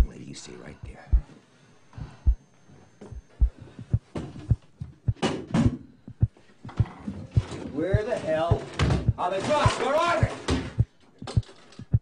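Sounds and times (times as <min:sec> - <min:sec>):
deep heartbeat-like thumping: 0:01.1 - 0:01.3, 0:02.0 - 0:02.4, 0:03.1 - 0:12.0.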